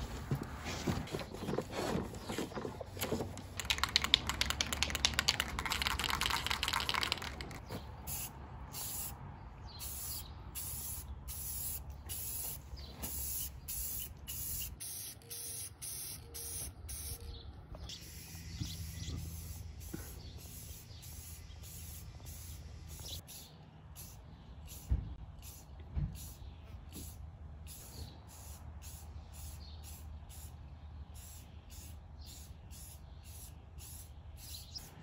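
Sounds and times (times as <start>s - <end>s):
spray can rattling: 2.2s - 9.1s, 13.1s - 17.2s
spray paint hissing: 3.4s - 17.2s, 17.9s - 26.4s, 27.0s - 30.6s, 31.2s - 34.8s.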